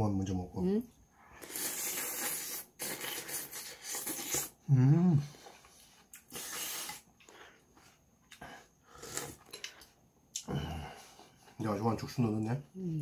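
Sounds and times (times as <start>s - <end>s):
person slurping soup: 1.4s - 4.6s, 6.2s - 7.1s
person humming mmm: 2.8s - 5.4s.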